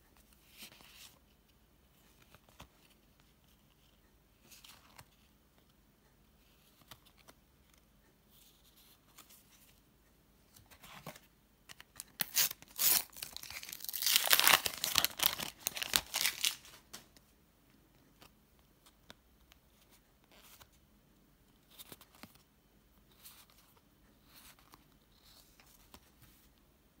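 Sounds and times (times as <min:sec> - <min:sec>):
wrapper tearing and crinkling: 0:12.1 - 0:16.8.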